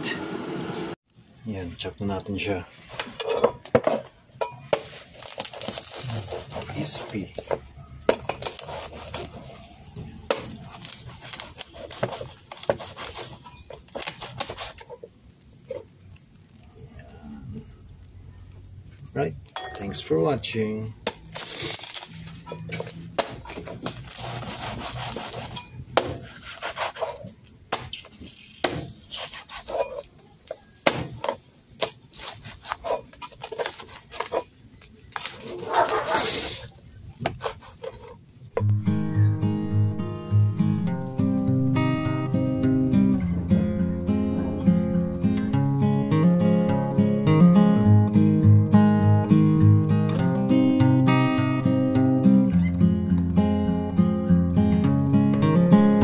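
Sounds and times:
knife cutting crispy pork skin: 8.3 - 9.7, 10.3 - 15.0, 23.2 - 27.2.

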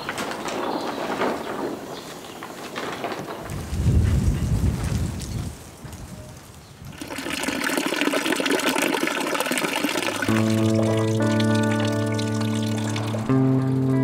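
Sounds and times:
water splashing from fountain spout: 6.9 - 13.4.

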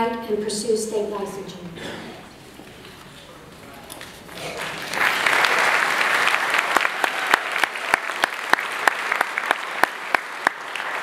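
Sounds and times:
audience applause: 4.0 - 11.0
one loud person clapping: 4.0 - 11.0.

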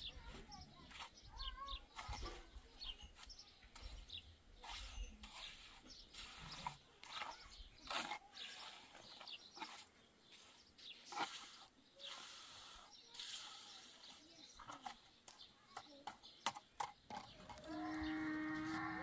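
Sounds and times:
held animal call: 17.6 - 19.0.

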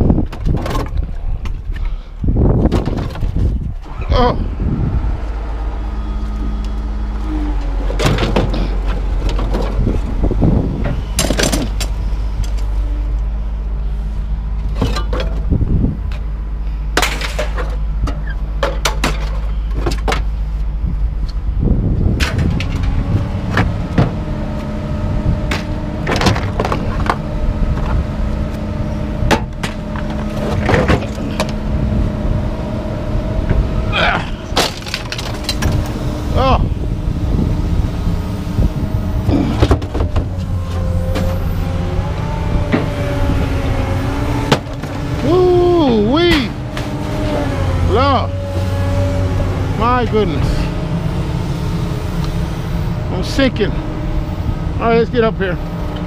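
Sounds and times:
engine running: 0.0 - 56.0
scrap metal clanking: 14.6 - 15.4.

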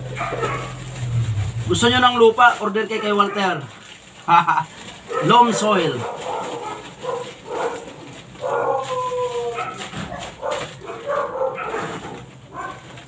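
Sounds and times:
plastic bag of soil rustling: 0.0 - 13.0
dog whining and yipping: 8.6 - 10.2.

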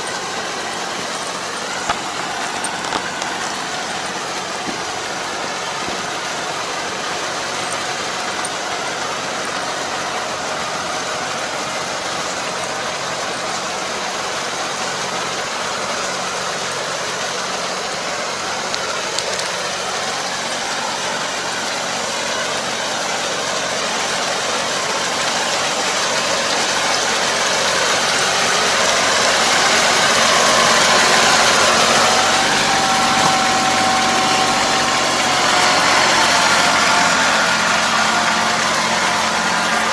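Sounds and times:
steady whine: 0.0 - 9.6
tractor engine running: 0.0 - 39.9.

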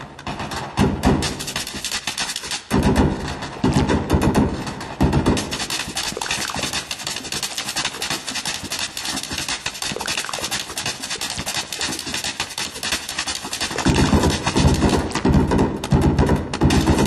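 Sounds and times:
dog toenails tapping on hard floor: 1.1 - 17.0.

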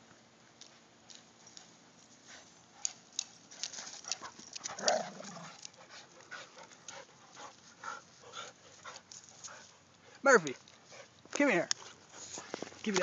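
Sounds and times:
dog vocal sound: 4.2 - 5.7
dogs scuffling: 10.6 - 13.0.

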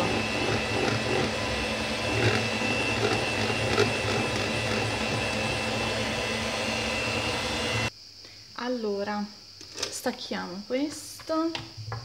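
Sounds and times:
electric hand mixer whining: 0.0 - 7.9.

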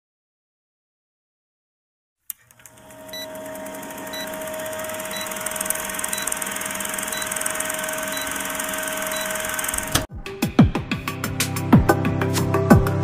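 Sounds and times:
film projector whirring clatter: 2.3 - 10.1.

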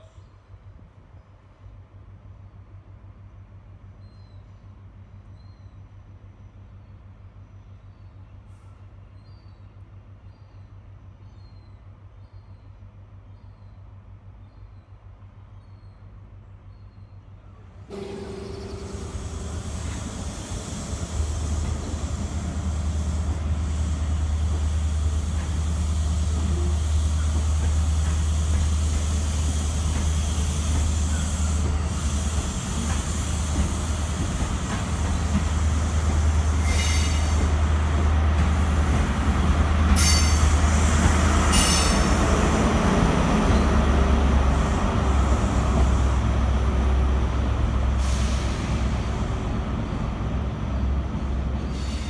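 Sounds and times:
diesel train engine drone: 4.6 - 52.0
train wheels squealing: 17.9 - 37.6, 39.9 - 42.4, 50.8 - 52.0.

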